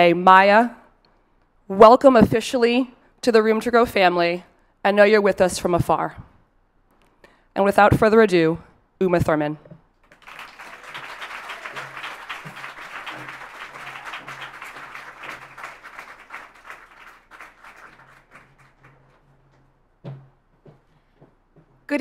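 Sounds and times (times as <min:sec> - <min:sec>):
audience applauding: 0:10.0 - 0:19.2.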